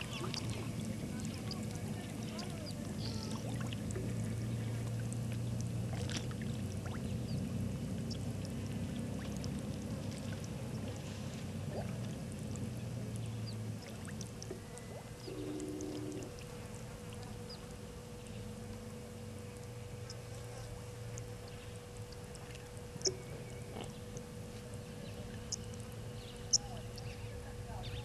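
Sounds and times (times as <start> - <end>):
steady low hum: 0.0 - 28.0
bird and insect chirps: 14.6 - 16.3, 23.0 - 28.0.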